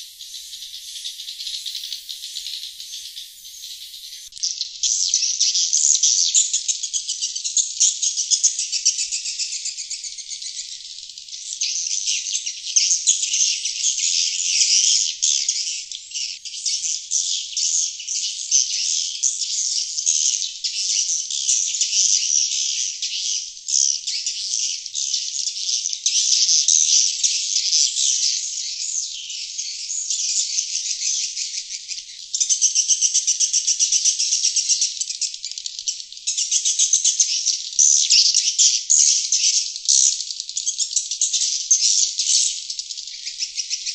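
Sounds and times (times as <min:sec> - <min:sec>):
swiftlet high-pitched chittering: 0:00.0 - 0:04.3.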